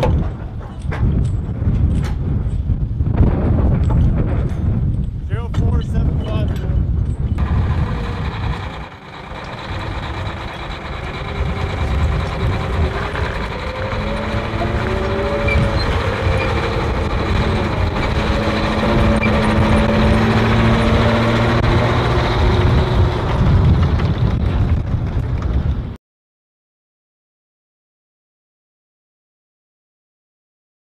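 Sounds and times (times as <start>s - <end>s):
tracked vehicle diesel engine: 6.9s - 26.0s
whining tones sliding in pitch: 7.4s - 23.8s.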